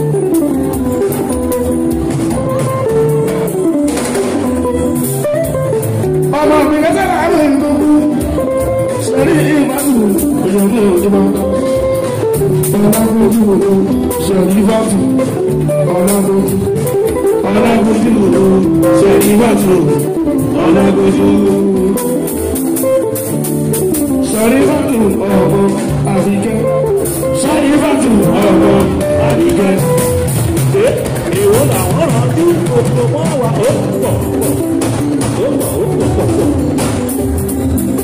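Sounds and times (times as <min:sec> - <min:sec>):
percussion: 0:00.0 - 0:38.0
plucked-string melody: 0:00.0 - 0:38.0
person singing: 0:06.2 - 0:23.0, 0:24.1 - 0:34.5.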